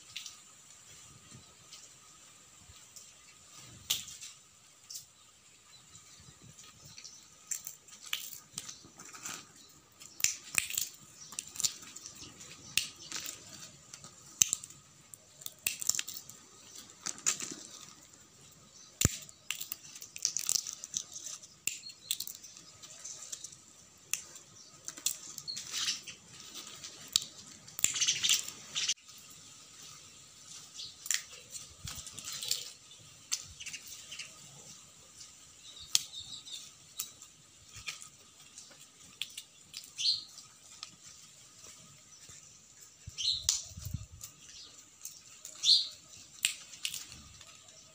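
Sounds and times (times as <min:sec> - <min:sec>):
pods rustling: 0:07.1 - 0:28.7
peanut shells cracking: 0:07.4 - 0:18.2, 0:18.8 - 0:26.0, 0:26.6 - 0:28.6, 0:31.0 - 0:33.8, 0:35.7 - 0:38.1, 0:39.0 - 0:41.0, 0:43.3 - 0:44.4, 0:45.0 - 0:47.9.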